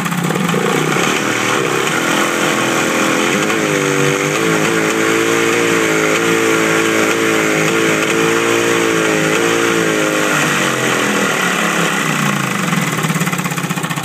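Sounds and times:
outboard motor running: 0:00.0 - 0:14.0.

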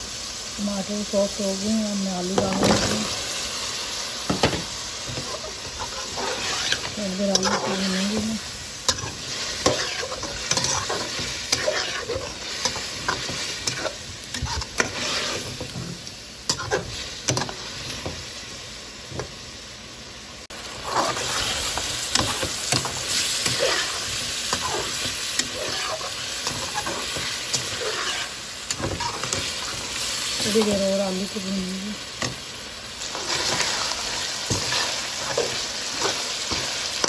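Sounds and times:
potatoes sizzling in oil: 0:00.0 - 0:37.0
metal spoon scraping and knocking pan: 0:08.9 - 0:15.9.

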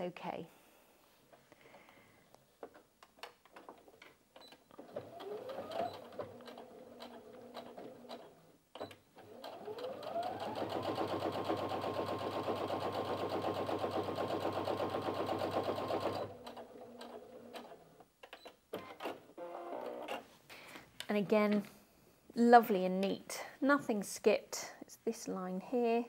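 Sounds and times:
sewing machine stitching: 0:04.8 - 0:17.8.

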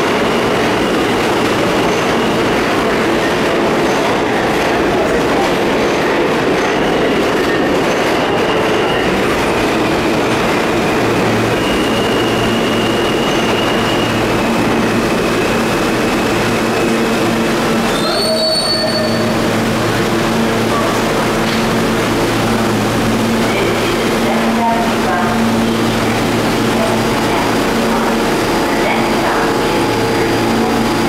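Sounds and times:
subway train rumble: 0:00.0 - 0:31.0
train wheel screech: 0:11.5 - 0:17.0, 0:17.7 - 0:19.6.

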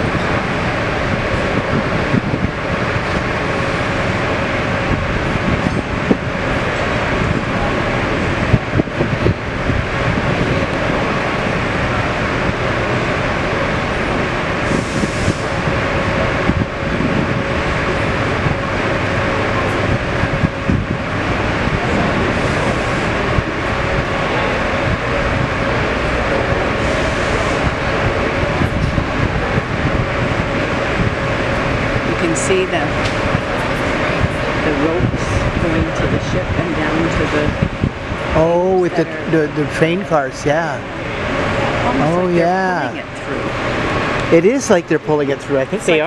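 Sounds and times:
machinery drone: 0:00.0 - 0:46.0
rumbling noise: 0:00.0 - 0:46.0.

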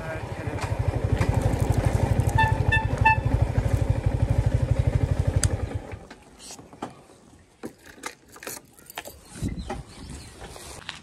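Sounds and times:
motorcycle engine running: 0:00.0 - 0:06.1
motorcycle horn beeps: 0:02.2 - 0:03.5.

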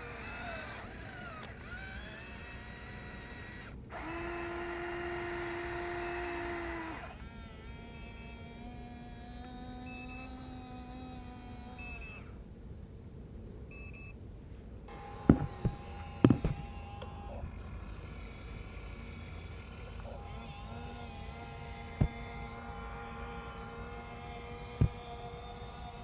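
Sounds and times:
small electric motors whining: 0:00.0 - 0:12.4, 0:14.9 - 0:26.0
sharp knocks: 0:15.2 - 0:16.6.

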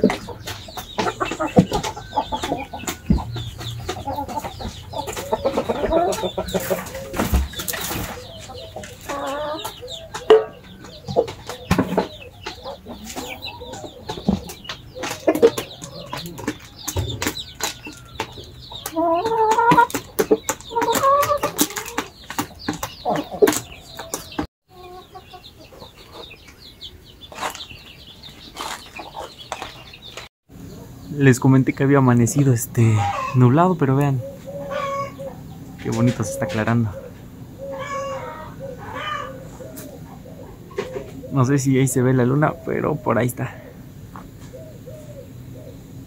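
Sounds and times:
chickens clucking: 0:00.0 - 0:46.0.

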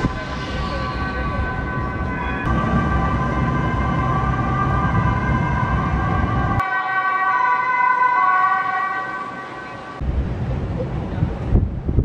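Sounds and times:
tram wheels squealing on track: 0:00.0 - 0:03.2
low rumble: 0:00.0 - 0:06.6.

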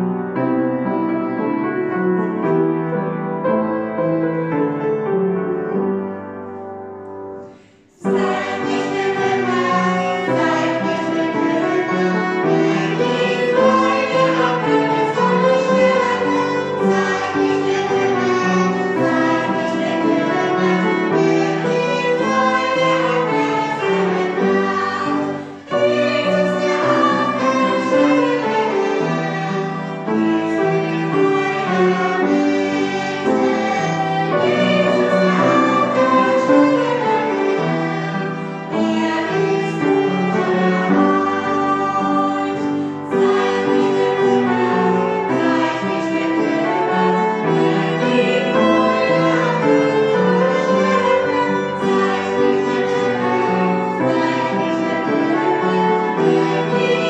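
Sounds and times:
piano playing: 0:00.0 - 0:57.0
violin: 0:07.3 - 0:57.0
group singing a hymn: 0:07.4 - 0:57.0.

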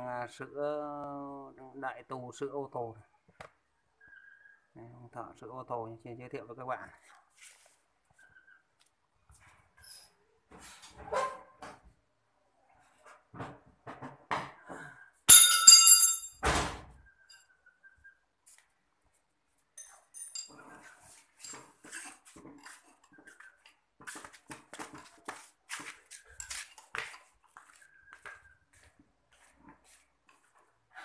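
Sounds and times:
wrench clinking and scraping: 0:15.3 - 0:16.4, 0:19.8 - 0:22.8.

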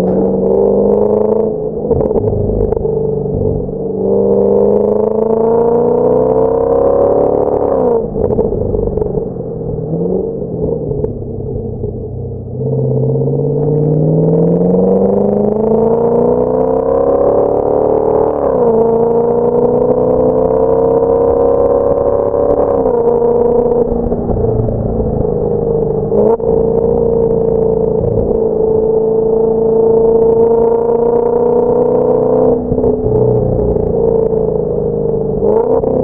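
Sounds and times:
car engine revving on dyno: 0:12.6 - 0:24.0.

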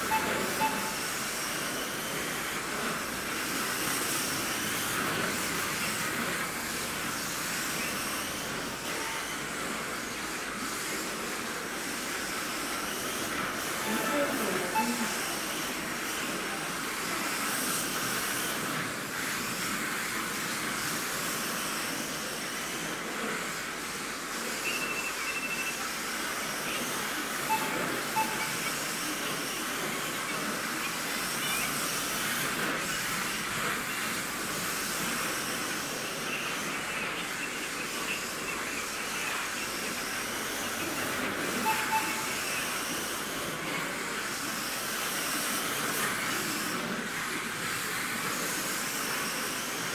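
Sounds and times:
rc car motor whine: 0:00.0 - 0:49.9
short beeps: 0:00.1 - 0:01.1, 0:13.9 - 0:15.2, 0:24.7 - 0:25.8, 0:27.5 - 0:28.7, 0:41.6 - 0:42.6.

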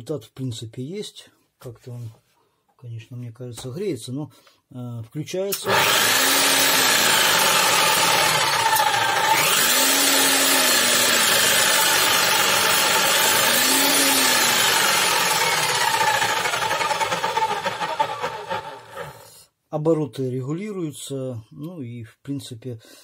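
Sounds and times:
demolition hammer motor running: 0:05.6 - 0:19.2.

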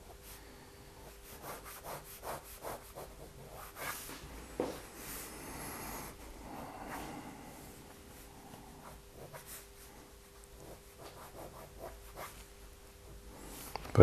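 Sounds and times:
pen rubbing across paper: 0:01.0 - 0:04.2, 0:08.1 - 0:13.6
pen scratching on paper: 0:01.0 - 0:04.2, 0:08.1 - 0:13.3.

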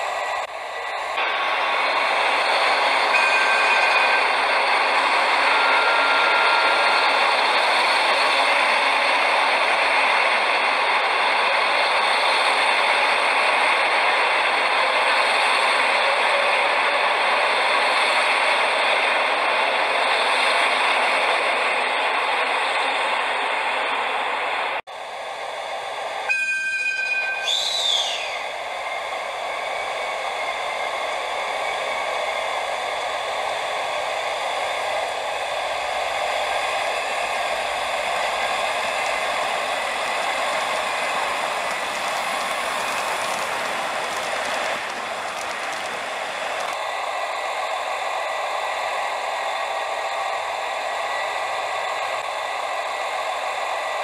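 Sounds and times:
model train running: 0:00.0 - 0:54.0
two-tone train horn: 0:03.1 - 0:07.4
falling whistle-like tone: 0:26.3 - 0:30.9.

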